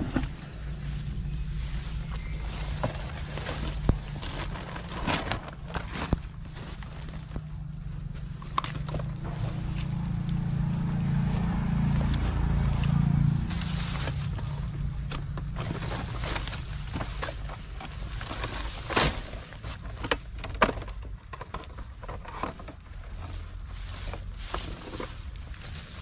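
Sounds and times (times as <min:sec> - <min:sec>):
low hum: 0:00.0 - 0:19.6
grass rustling: 0:00.0 - 0:26.0.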